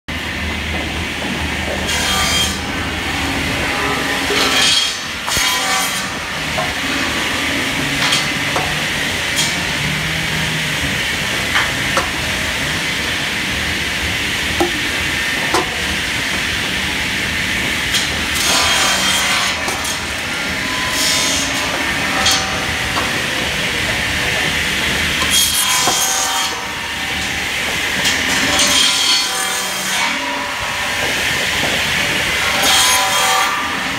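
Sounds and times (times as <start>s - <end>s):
firewood saw running: 1.7s - 31.2s
saw blade rasping through logs: 3.7s - 13.7s, 17.7s - 23.5s, 24.9s - 27.3s, 28.0s - 30.4s, 32.4s - 33.9s.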